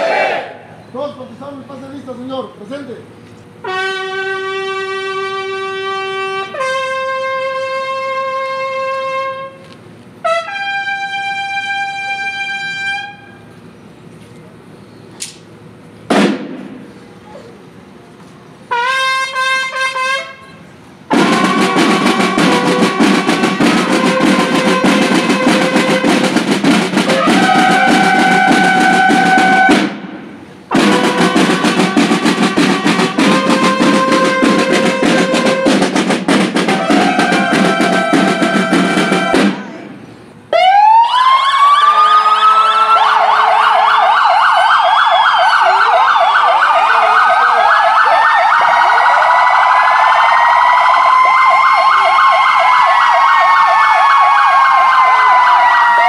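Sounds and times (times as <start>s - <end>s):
bugle playing: 3.6s - 13.5s, 18.7s - 30.0s, 30.7s - 39.7s, 40.6s - 56.0s
emergency sirens wailing: 3.6s - 13.5s, 21.1s - 30.0s, 30.7s - 39.6s, 40.5s - 56.0s
snare drum roll: 16.1s - 16.9s, 21.1s - 39.7s.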